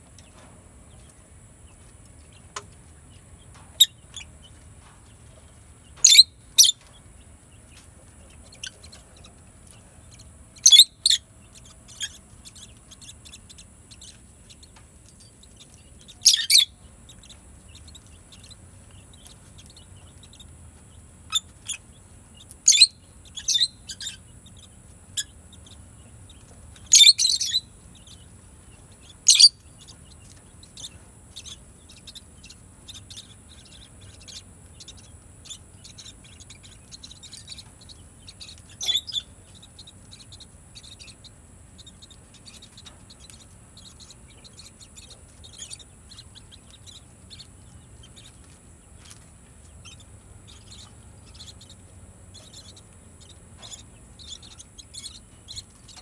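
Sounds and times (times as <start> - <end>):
lovebirds chirping shrilly: 6.0 - 6.8, 10.6 - 14.2, 16.1 - 16.8, 22.6 - 24.2, 26.8 - 28.1, 29.0 - 29.6, 30.7 - 48.4.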